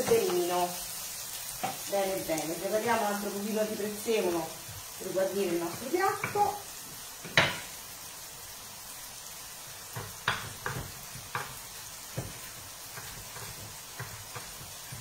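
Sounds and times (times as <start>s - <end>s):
frying sizzle: 0.0s - 15.0s
knife chopping on wooden board: 9.9s - 15.0s.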